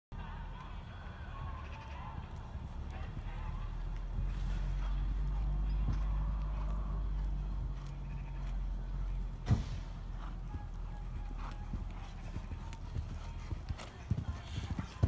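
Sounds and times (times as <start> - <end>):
hooves on sand: 0.6 - 15.0
horse landing thud: 9.4 - 10.4.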